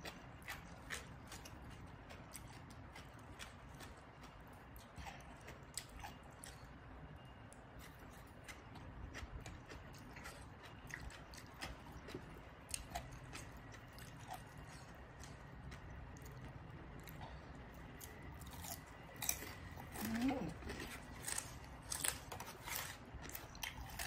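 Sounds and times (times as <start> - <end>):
soft chewing: 0.0 - 24.0.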